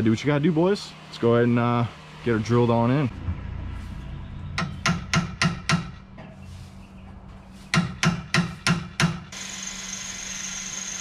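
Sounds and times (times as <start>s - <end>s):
hammer blows: 3.2s - 6.4s, 7.7s - 9.4s.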